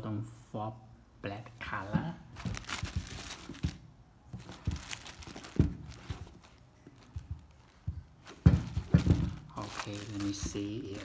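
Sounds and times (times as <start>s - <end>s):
plastic bags crinkling: 2.3s - 11.0s
knocks: 7.2s - 9.6s.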